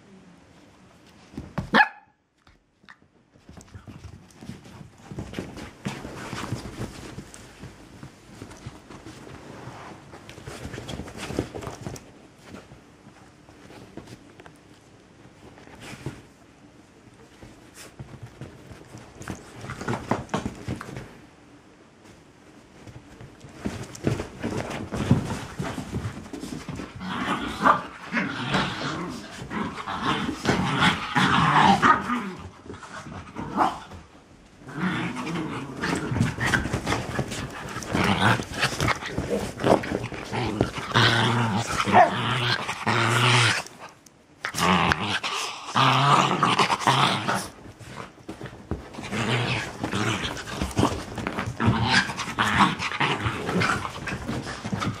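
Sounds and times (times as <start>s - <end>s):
dogs growling in play: 23.6s - 55.0s.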